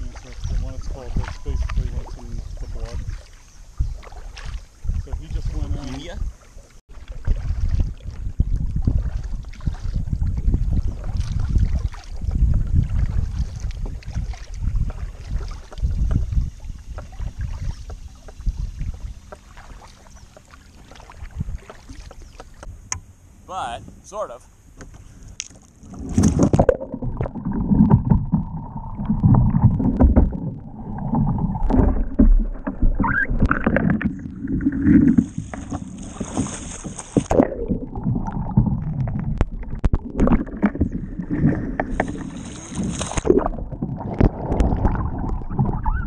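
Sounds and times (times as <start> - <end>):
water sloshing and gurgling: 0.0 - 46.0
sharp water splashes: 10.9 - 12.3, 25.4 - 46.0.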